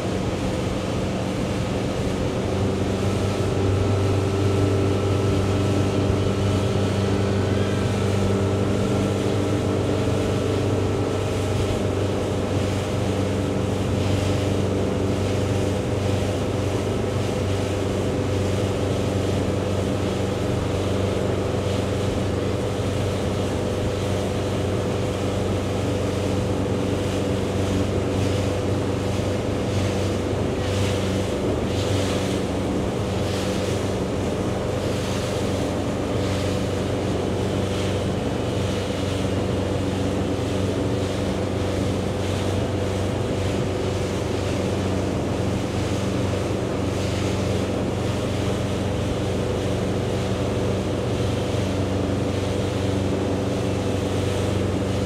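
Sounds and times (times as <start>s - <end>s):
motorboat engine humming: 0.0s - 55.0s
rushing water: 0.0s - 55.0s.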